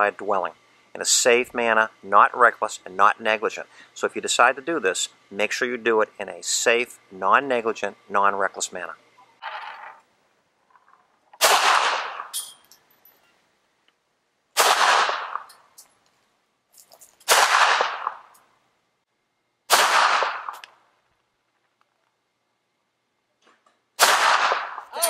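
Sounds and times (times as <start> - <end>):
handgun shots with echo: 11.4 - 12.3, 14.6 - 15.5, 17.2 - 18.3, 19.7 - 20.6, 24.0 - 24.8.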